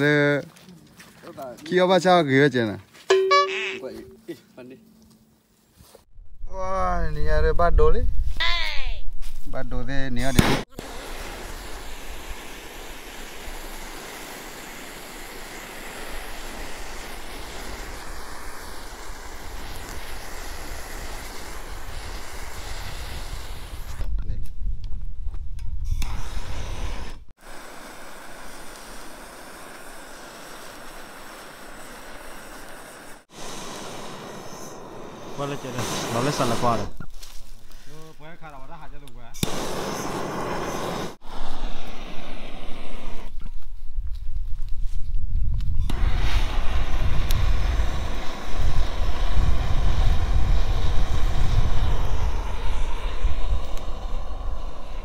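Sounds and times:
wind rushing through leaves: 0:09.0 - 0:25.4, 0:39.5 - 0:55.0
gas torch hissing roar: 0:10.6 - 0:24.0, 0:25.9 - 0:37.0, 0:39.4 - 0:43.4, 0:45.8 - 0:55.0
wind buffeting microphone: 0:42.3 - 0:55.0.

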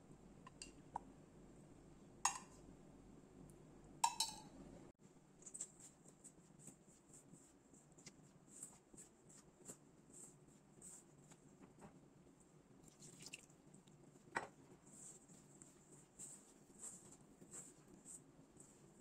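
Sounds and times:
hand mixing dough squishing: 0:05.1 - 0:19.0.

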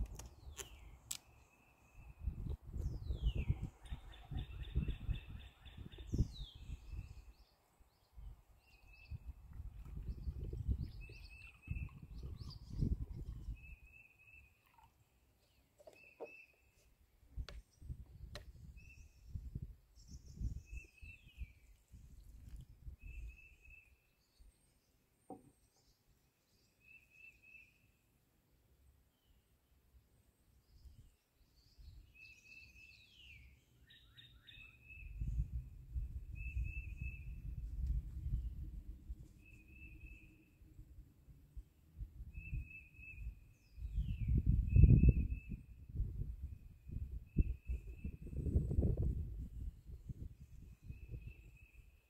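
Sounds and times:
bird chirping: 0:00.1 - 0:22.4, 0:30.6 - 0:37.6, 0:38.2 - 0:40.7, 0:42.3 - 0:45.8
wind on microphone: 0:02.0 - 0:07.4, 0:08.2 - 0:13.9, 0:17.3 - 0:23.8, 0:34.8 - 0:40.2, 0:41.5 - 0:52.0.

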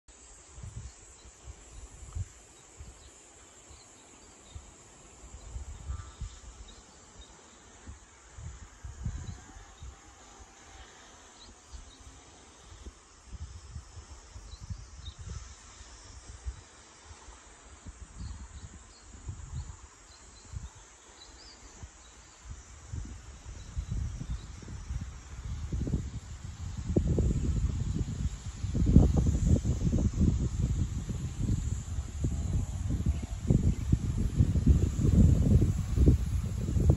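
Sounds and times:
high-pitched insect drone: 0:00.2 - 0:36.9
wind buffeting microphone: 0:07.7 - 0:10.2, 0:12.7 - 0:20.9, 0:21.6 - 0:36.9.

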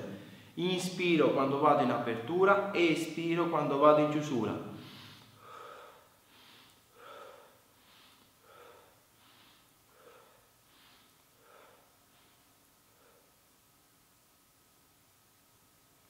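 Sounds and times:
man breathing: 0:00.1 - 0:00.6, 0:04.7 - 0:13.7.

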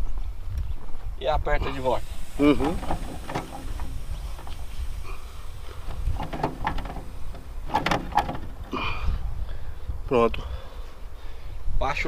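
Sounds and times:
metal clanks and rattles: 0:02.2 - 0:09.2.

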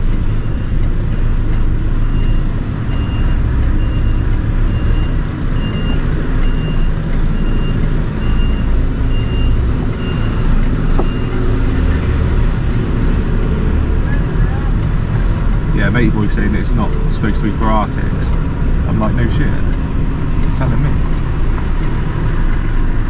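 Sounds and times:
reversing alarm beeping: 0:00.0 - 0:11.6
lorry diesel engine running: 0:00.0 - 0:23.0.

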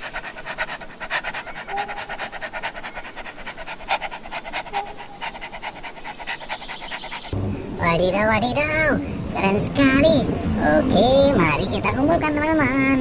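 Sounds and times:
large dog panting: 0:00.0 - 0:07.5.

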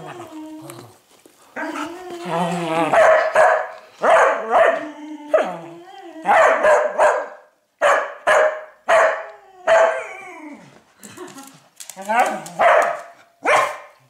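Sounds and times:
dog barking: 0:02.9 - 0:04.8, 0:06.3 - 0:10.0, 0:12.6 - 0:14.0.

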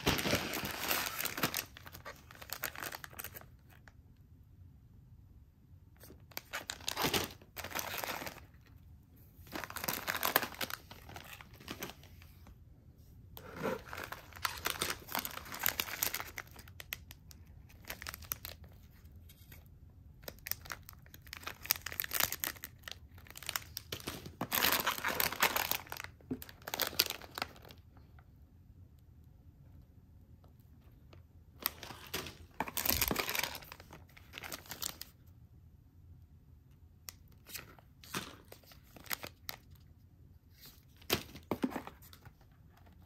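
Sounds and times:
plastic wrappers crinkling: 0:00.0 - 0:03.9, 0:06.0 - 0:08.7, 0:09.4 - 0:12.2, 0:13.4 - 0:19.0, 0:20.2 - 0:27.8, 0:31.6 - 0:35.2, 0:37.4 - 0:39.9.

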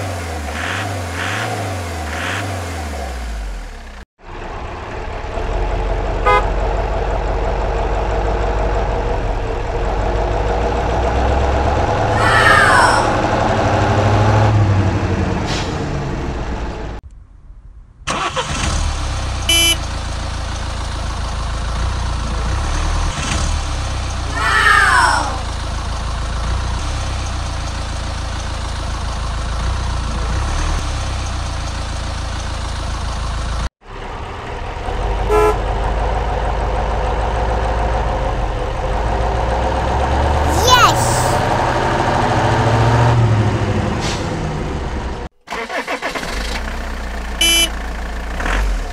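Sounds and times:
truck engine running: 0:03.2 - 0:12.2, 0:18.1 - 0:24.4, 0:25.4 - 0:40.3, 0:41.3 - 0:48.9
short horn-like toots: 0:19.5 - 0:19.8.

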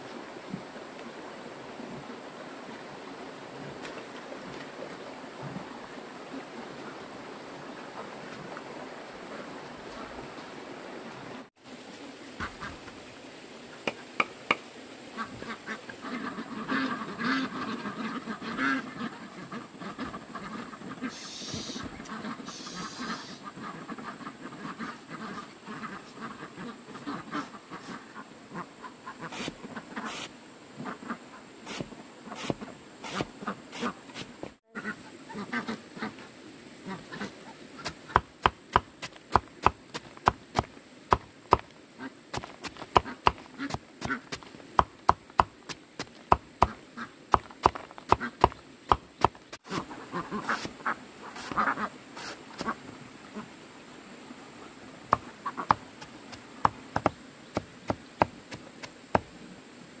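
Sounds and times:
duck quacks: 0:15.2 - 0:30.2, 0:34.7 - 0:36.2, 0:36.8 - 0:38.2, 0:49.6 - 0:52.8
high insect buzz: 0:21.1 - 0:21.9, 0:22.5 - 0:23.4.

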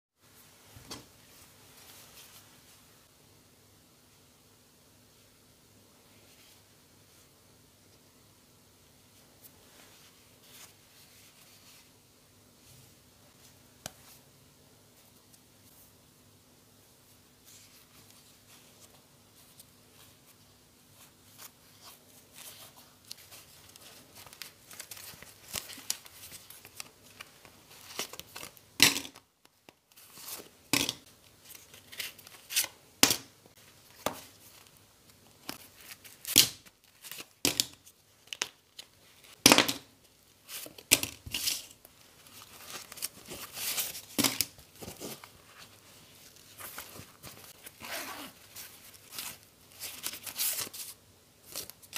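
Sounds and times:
leather rubbing and flexing: 0:47.6 - 0:48.4.

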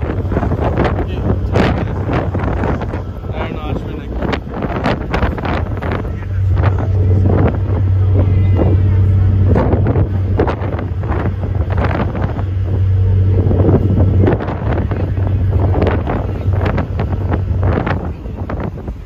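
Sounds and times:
ferry engine drone: 0:00.0 - 0:19.0
wind buffeting microphone: 0:00.0 - 0:19.0.

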